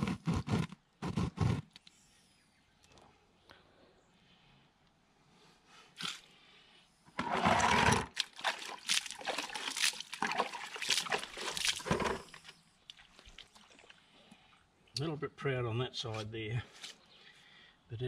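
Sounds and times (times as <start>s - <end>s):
water splashing in a bucket: 7.2s - 14.6s
water dripping: 8.2s - 11.9s.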